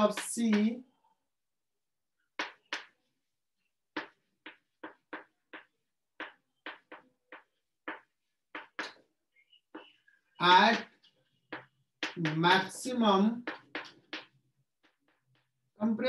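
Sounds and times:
chalk writing on chalkboard: 0:03.9 - 0:15.6.

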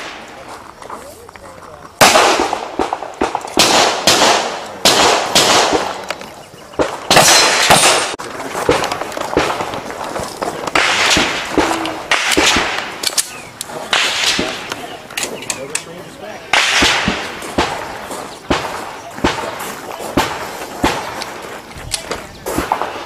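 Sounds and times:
handgun shots with echo: 0:02.0 - 0:09.8, 0:10.7 - 0:15.8.

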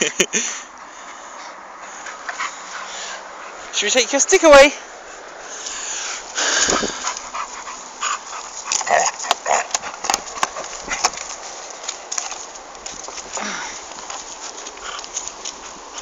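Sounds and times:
dog vocalising: 0:06.8 - 0:11.0.

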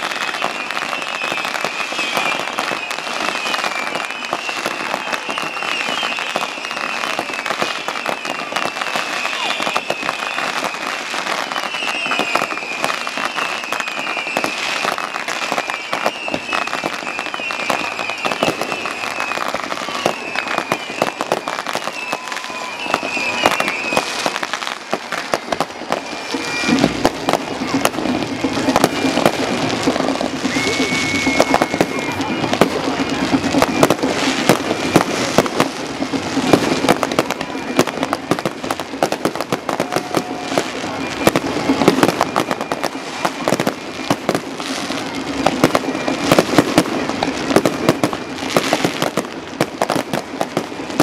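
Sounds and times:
fireworks bangs and crackles: 0:00.0 - 0:51.0
high warbling whistles: 0:00.1 - 0:35.6.

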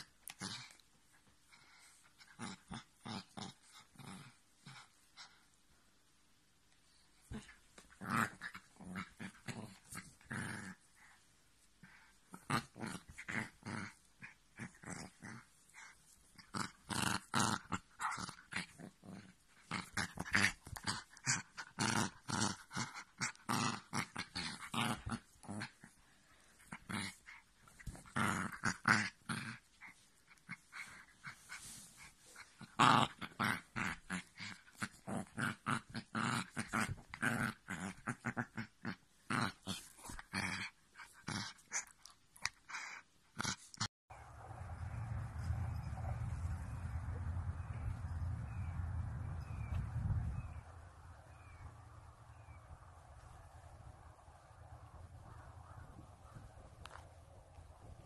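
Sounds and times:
small dog growling: 0:00.0 - 0:00.8, 0:01.7 - 0:05.4, 0:07.2 - 0:11.2, 0:11.8 - 0:43.9.

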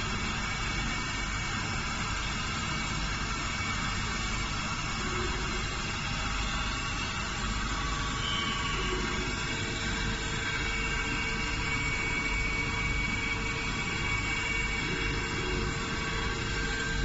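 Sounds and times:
steady machine hum: 0:00.0 - 0:17.0
steady whining tones: 0:00.0 - 0:17.0.

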